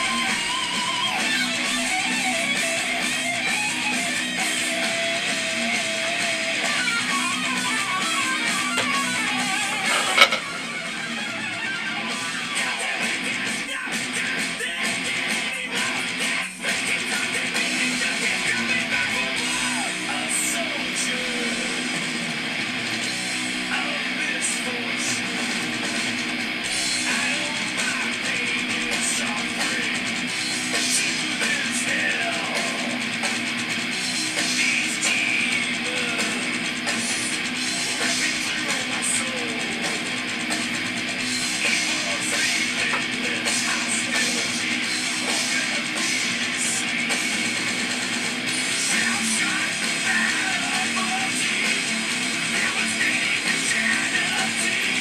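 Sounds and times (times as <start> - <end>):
guitar music: 0.0 - 12.6, 36.2 - 55.0.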